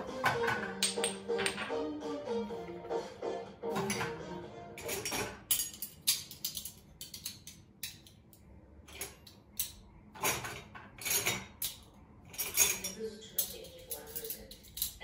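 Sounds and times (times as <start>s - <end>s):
dishes and cutlery clinking: 0.0s - 1.9s, 3.7s - 15.0s.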